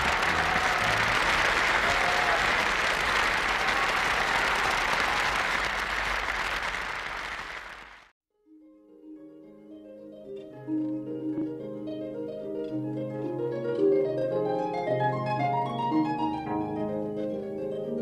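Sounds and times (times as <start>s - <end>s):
audience applauding: 0.0s - 8.1s
plucked harp notes: 8.5s - 18.0s.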